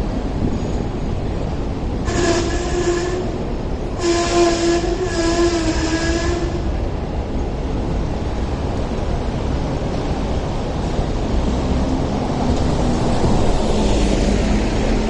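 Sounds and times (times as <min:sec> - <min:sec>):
tram wheel squeal: 0:00.0 - 0:06.8
electric tram running on track: 0:00.0 - 0:15.0
street traffic rumble: 0:00.0 - 0:15.0.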